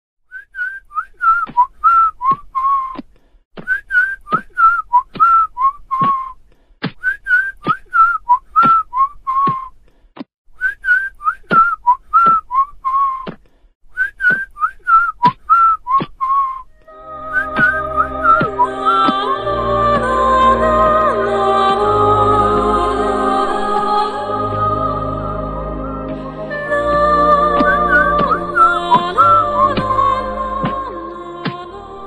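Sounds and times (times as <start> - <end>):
person whistling a tune: 0.3 - 3.0, 3.6 - 6.4, 7.0 - 9.8, 10.6 - 19.2, 27.6 - 29.8.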